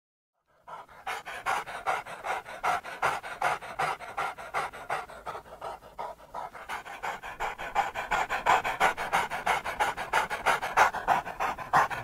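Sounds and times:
dog panting: 0.4s - 12.0s.

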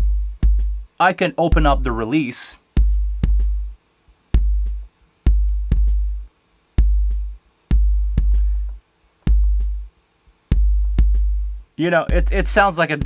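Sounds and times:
deep sine tone: 0.0s - 0.9s
kick drum with booming tail: 0.0s - 1.0s, 1.6s - 1.9s, 2.8s - 3.8s, 4.4s - 9.9s, 10.5s - 12.7s.

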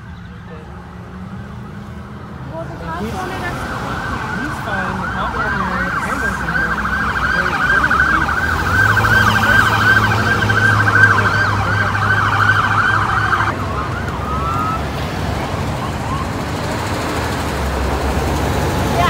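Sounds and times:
freeway traffic: 0.0s - 19.0s
police sirens wailing: 0.0s - 19.0s.

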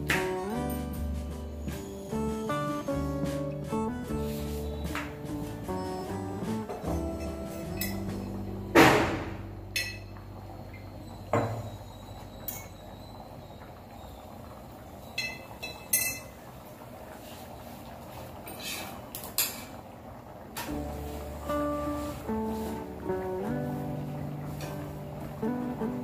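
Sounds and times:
induction cooktop hum: 0.0s - 26.0s
sharp metal clank: 8.8s - 10.1s.

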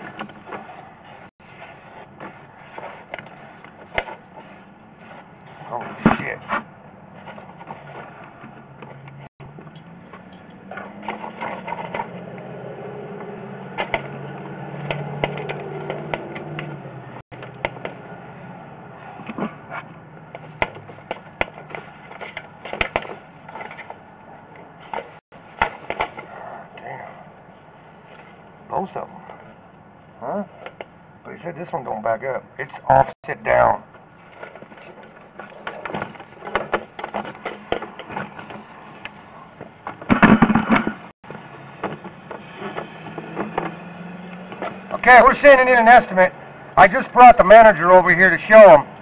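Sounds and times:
hard knocks and clatter: 39.7s - 41.1s.

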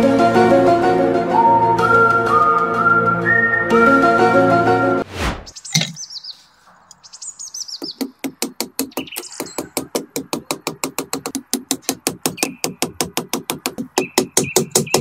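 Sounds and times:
background music: 0.0s - 5.1s
whoosh: 5.0s - 5.6s
bird chirps: 5.5s - 8.2s, 8.9s - 9.7s, 12.4s - 12.8s, 14.0s - 15.0s
hammer tapping stake: 7.8s - 15.0s.

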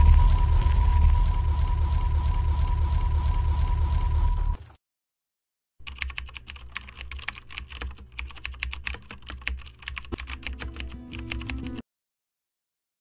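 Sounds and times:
low hum: 0.0s - 4.7s
keyboard key clicks: 5.8s - 11.8s.

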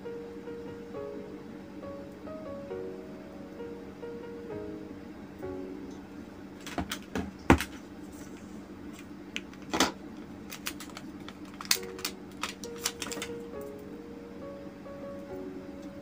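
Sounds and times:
plastic bag crinkling: 9.5s - 13.4s.

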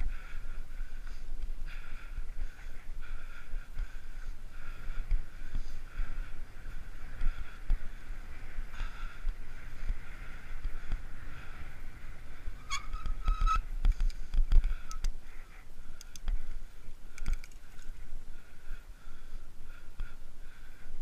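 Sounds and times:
wind: 0.0s - 21.0s
bicycle ticking clicks: 1.0s - 18.0s
bicycle brake squeal: 12.6s - 13.7s.

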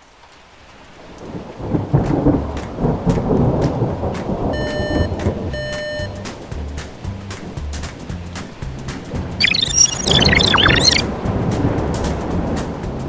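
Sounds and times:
heavy rain: 0.0s - 13.0s
rumbling thunder: 1.2s - 4.6s
short beeps: 4.6s - 6.2s, 9.4s - 11.0s.

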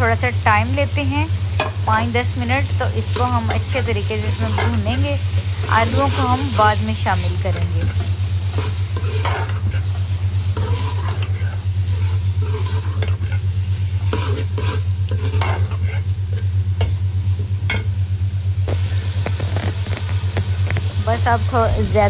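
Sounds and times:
food sizzling: 0.0s - 22.0s
ladle scraping pot: 3.1s - 6.6s, 7.5s - 16.5s.

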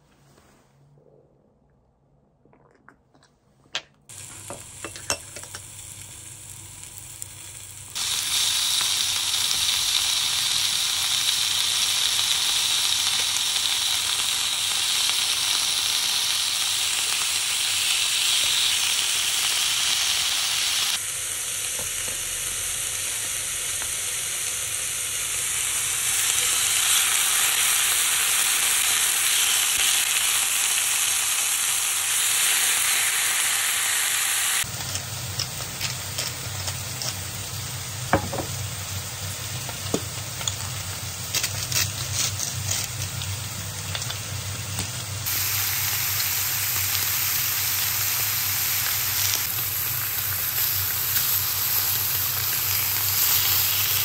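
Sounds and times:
pork sizzling in a pan: 4.1s - 54.0s.

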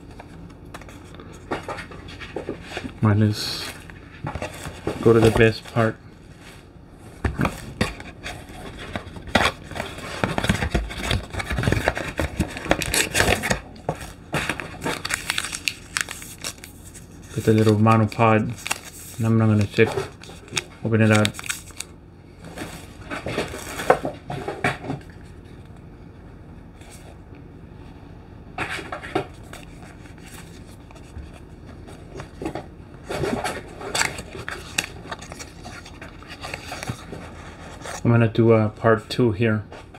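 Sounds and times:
cardboard boxes being handled: 7.2s - 19.2s.

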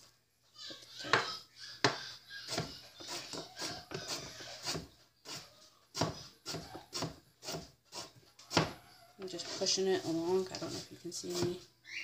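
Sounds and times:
knife chopping on cutting board: 1.9s - 8.8s, 9.4s - 11.6s.

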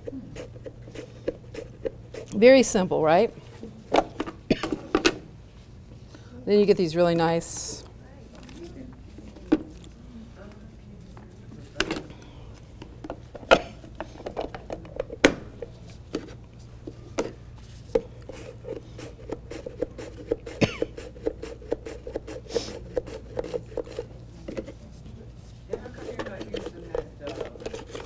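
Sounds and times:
onion slicing strokes on mandoline: 0.0s - 2.4s, 18.3s - 24.1s.

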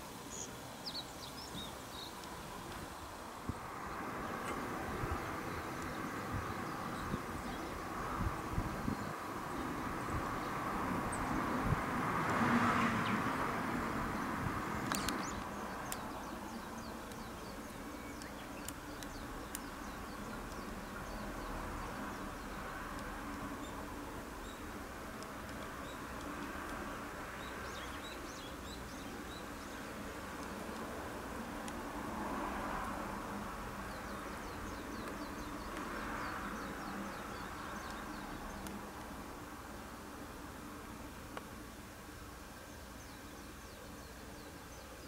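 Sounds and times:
distant small birds chirping: 0.0s - 45.0s
low background hiss: 0.0s - 45.0s
sharp clicks: 14.8s - 16.1s.

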